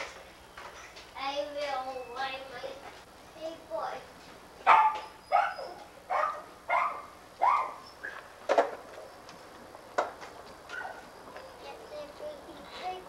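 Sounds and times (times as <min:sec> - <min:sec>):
dog barking: 0:04.6 - 0:08.2, 0:10.7 - 0:11.1.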